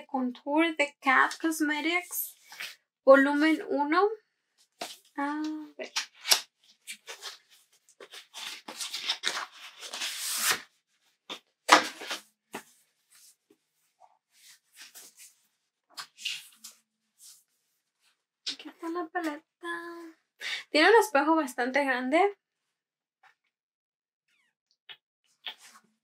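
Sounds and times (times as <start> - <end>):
packaging rustling and crinkling: 5.9 - 10.6.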